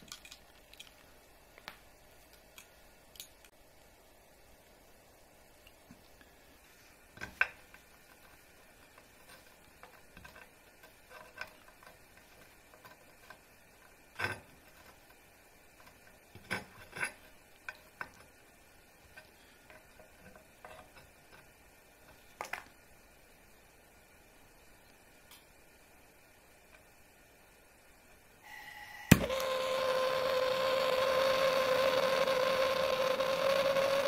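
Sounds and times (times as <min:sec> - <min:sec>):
small hard pieces clicking: 0:00.0 - 0:03.6.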